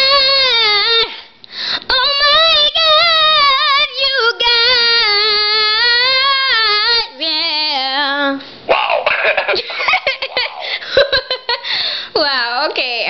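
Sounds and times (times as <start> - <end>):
girl singing: 0.0 - 8.5.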